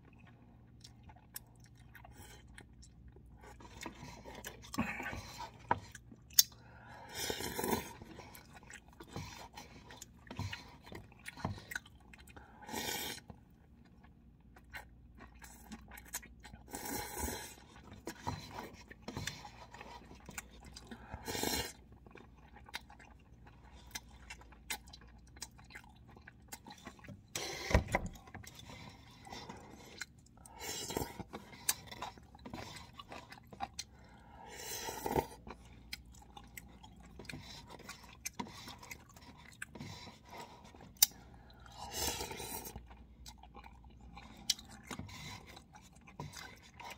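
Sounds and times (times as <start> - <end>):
wet chewing clicks: 0.0 - 6.6
person slurping noodles: 12.6 - 13.3, 21.1 - 21.8, 34.4 - 35.4, 41.7 - 42.8.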